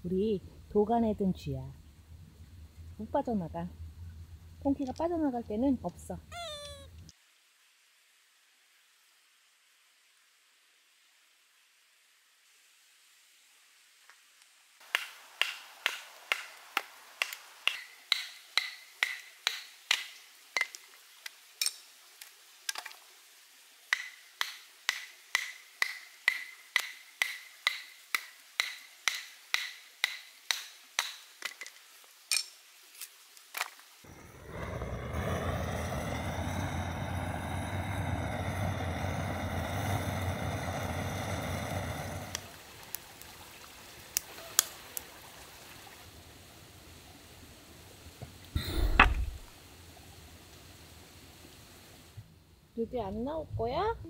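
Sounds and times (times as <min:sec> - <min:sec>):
torch lighter roaring: 0:34.0 - 0:42.6, 0:48.6 - 0:49.5
wood splitting strikes: 0:48.6 - 0:49.5.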